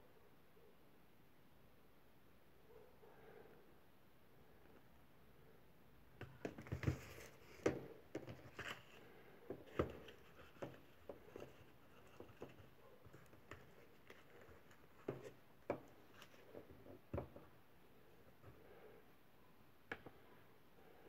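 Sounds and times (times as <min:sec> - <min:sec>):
cardboard taps and knocks: 0:06.2 - 0:08.8, 0:09.5 - 0:15.9, 0:16.9 - 0:17.5.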